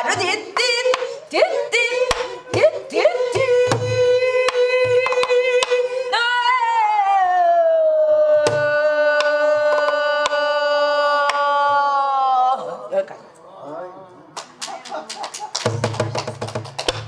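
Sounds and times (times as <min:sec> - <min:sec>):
woman singing long held notes: 0:00.0 - 0:12.9.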